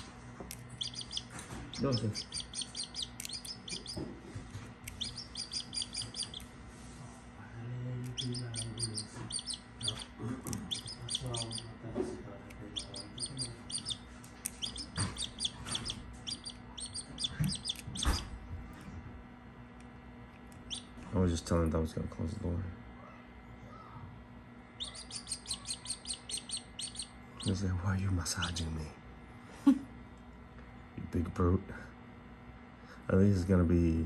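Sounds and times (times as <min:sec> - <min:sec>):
chick peeping: 0:00.7 - 0:04.1, 0:04.9 - 0:06.5, 0:08.1 - 0:11.7, 0:12.6 - 0:18.3, 0:24.8 - 0:27.6.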